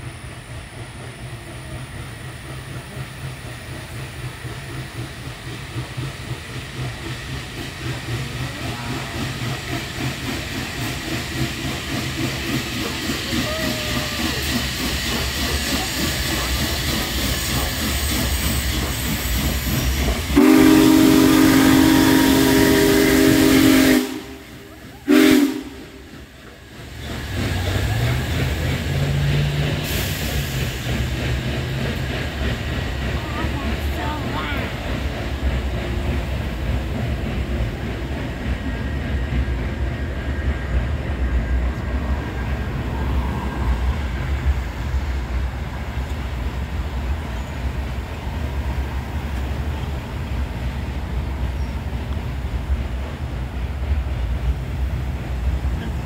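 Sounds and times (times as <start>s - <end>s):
diesel locomotive engine running: 0.0s - 56.0s
steam locomotive chuffing: 0.0s - 56.0s
steam whistle blast: 20.3s - 26.1s.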